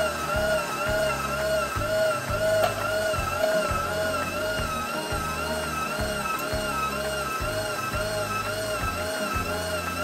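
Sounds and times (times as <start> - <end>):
low bass line: 0.0 - 10.0
wavering high tone: 0.0 - 10.0.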